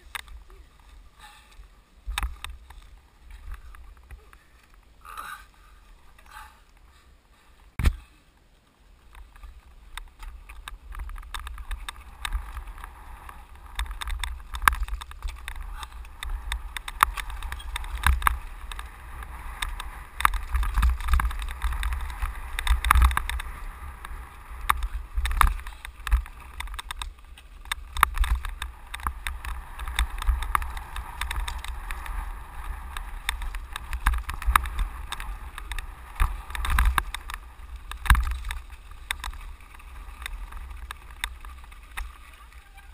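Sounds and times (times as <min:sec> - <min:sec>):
tyres crunching over gravel: 0:08.8 - 0:42.9
bike rattling and knocking: 0:09.1 - 0:42.9.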